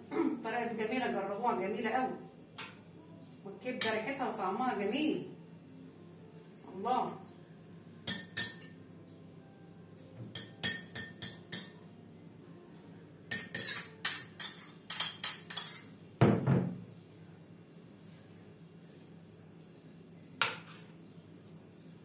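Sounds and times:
metal spoon clinking on pan: 8.0 - 8.7, 10.3 - 11.8, 13.3 - 15.9.

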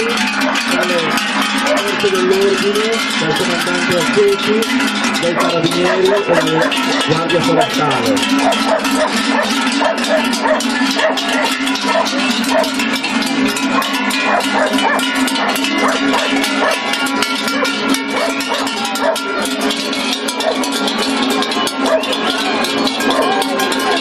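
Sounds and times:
cowbells clanking: 0.0 - 24.0.

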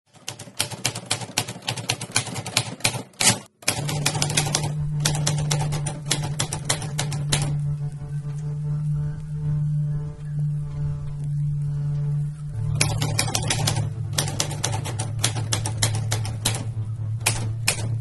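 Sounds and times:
typewriter keys clacking: 0.1 - 7.5, 12.8 - 18.0
low steady drone: 3.8 - 18.0.

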